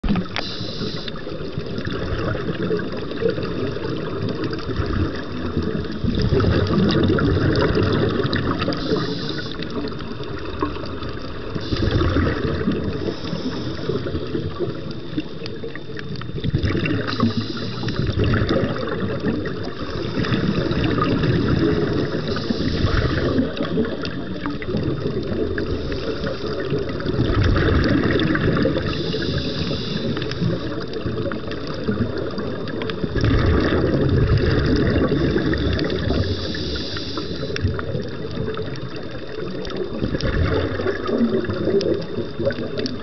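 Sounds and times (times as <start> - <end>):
exhaled bubbles surging: 0.0 - 43.0
diver breathing through regulator: 0.2 - 1.3, 8.4 - 9.9, 11.5 - 14.4, 16.8 - 18.6, 19.7 - 24.0, 25.6 - 27.0, 28.4 - 30.8, 35.2 - 38.0.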